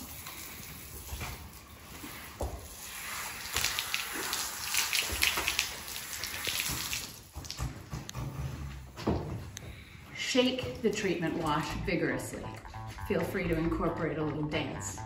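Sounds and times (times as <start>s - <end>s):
hose water spraying: 0.0s - 7.7s.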